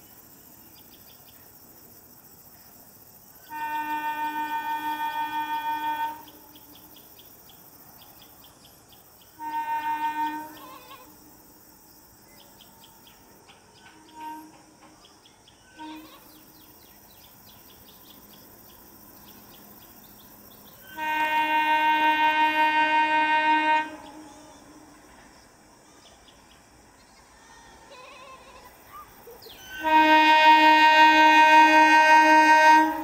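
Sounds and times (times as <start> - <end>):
faint outdoor ambience: 0.0 - 33.0
train horn blast: 3.4 - 6.8, 9.4 - 11.2, 14.0 - 14.9, 15.7 - 16.6, 20.8 - 25.0, 29.6 - 33.0
faint high chirping: 10.4 - 21.0, 25.8 - 29.9.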